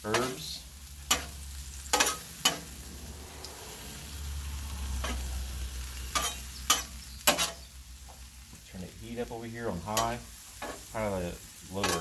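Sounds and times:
metal spatula scraping griddle: 0:00.0 - 0:07.7, 0:09.6 - 0:11.1, 0:11.7 - 0:12.0
food sizzling on griddle: 0:00.0 - 0:12.0
low hum: 0:02.4 - 0:06.1.

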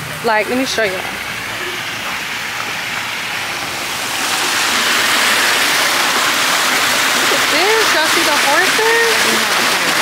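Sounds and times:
fountain water splashing: 0:00.0 - 0:10.0.

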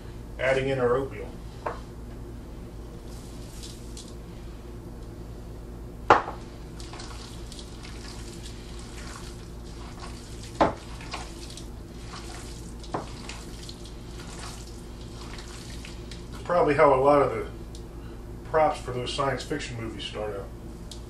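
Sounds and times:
steady low hum: 0:00.0 - 0:21.0
hands squelching meat mixture: 0:06.5 - 0:16.4.

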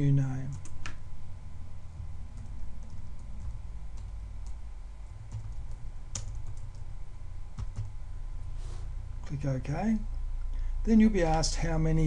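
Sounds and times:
low steady hum: 0:00.0 - 0:12.0
computer keyboard typing: 0:02.4 - 0:04.6, 0:05.2 - 0:06.9, 0:07.6 - 0:07.9.

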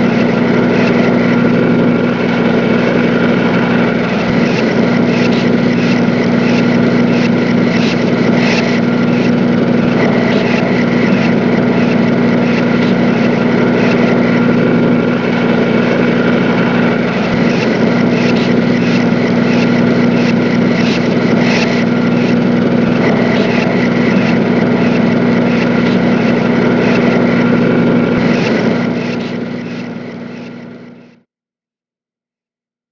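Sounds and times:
machine engine droning: 0:00.0 - 0:31.2.

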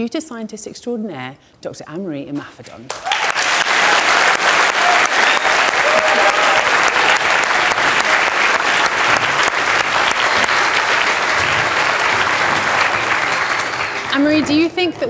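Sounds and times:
audience applauding: 0:02.9 - 0:14.5.

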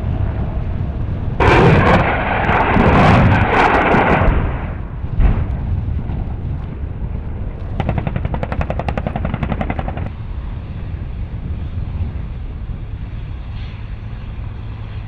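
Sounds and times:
helicopter rumble: 0:00.0 - 0:15.0
rapid sharp pulses: 0:07.8 - 0:10.1.

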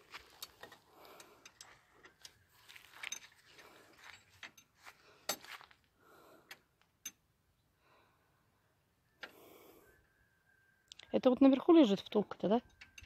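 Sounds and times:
hand tools clinking on metal: 0:00.2 - 0:05.6.

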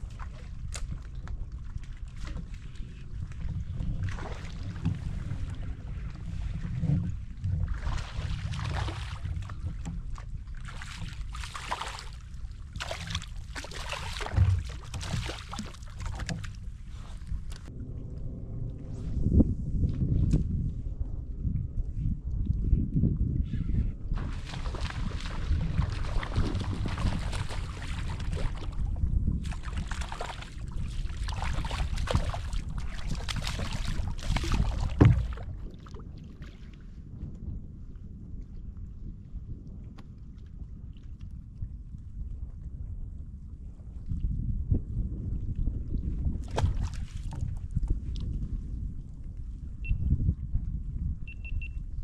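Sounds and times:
wind rumble on microphone: 0:00.0 - 0:52.0
fish splashing at the surface: 0:12.8 - 0:16.5.

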